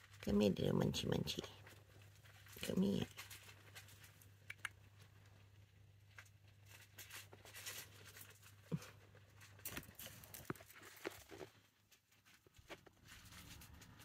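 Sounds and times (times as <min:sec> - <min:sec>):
rustling of paper bedding: 0:06.0 - 0:14.0.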